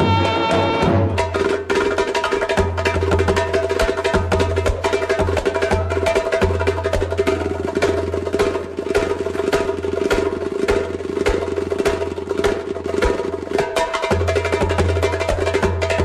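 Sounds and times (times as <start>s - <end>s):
held instrumental notes: 0.0s - 5.0s
goblet drum played by hand: 0.0s - 16.0s.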